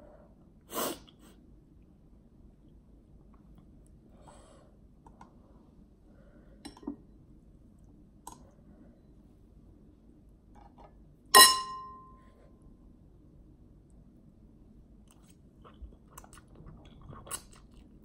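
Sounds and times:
loud ringing clink on glass: 11.4 - 12.2.

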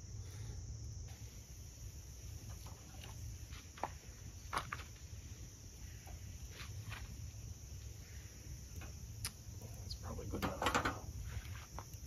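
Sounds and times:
wood fire crackling: 1.0 - 12.0
sharp pops and snaps: 8.7 - 9.7.

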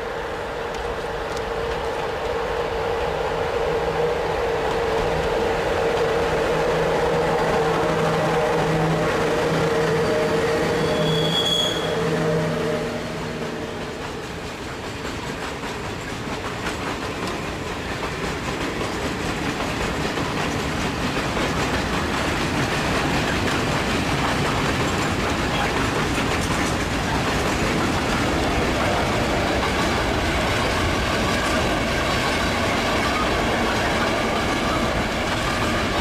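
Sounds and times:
electric locomotive hum: 0.0 - 36.0
brief high squeal: 10.7 - 12.5
freight wagons clacking over rails: 13.2 - 36.0.

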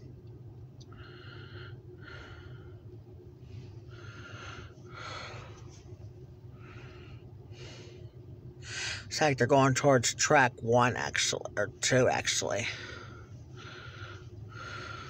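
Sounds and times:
low car cabin hum: 0.0 - 15.0
breathing close to microphone: 0.9 - 9.1, 12.7 - 15.0.

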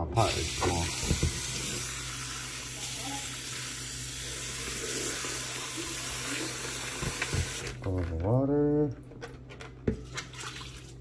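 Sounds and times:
faucet running into bowl: 0.2 - 7.7.

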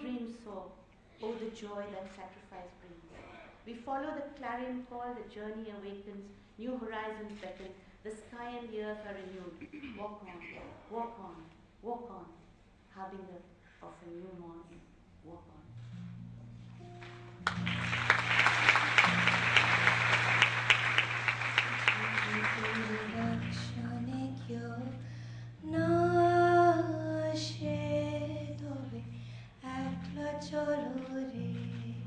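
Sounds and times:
applause: 17.0 - 23.8
women singing in unison: 25.6 - 32.0.

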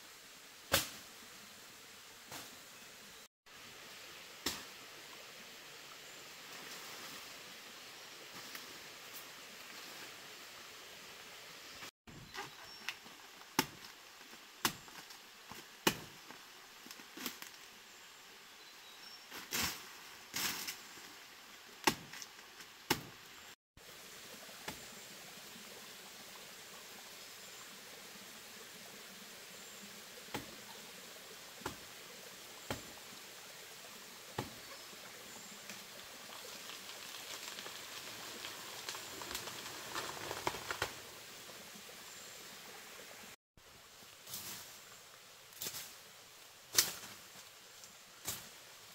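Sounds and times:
forest ambience: 0.0 - 48.9
leaves rustling: 0.7 - 48.9
twigs snapping: 36.9 - 41.0.

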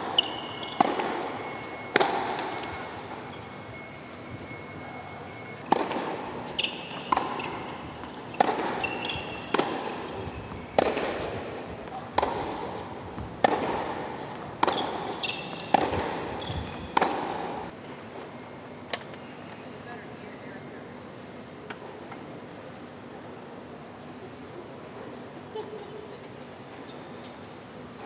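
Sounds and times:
tennis ball struck by rackets: 0.0 - 2.9, 5.6 - 17.6
shoes squeaking on court: 0.0 - 17.7.

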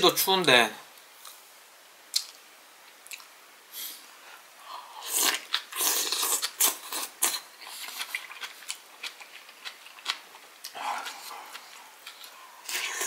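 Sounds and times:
wet eating sounds: 5.0 - 13.0
chewing: 5.1 - 13.0.

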